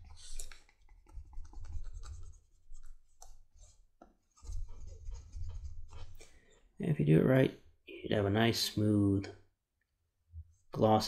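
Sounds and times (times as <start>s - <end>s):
wooden tool rubbing leather: 3.6s - 6.2s.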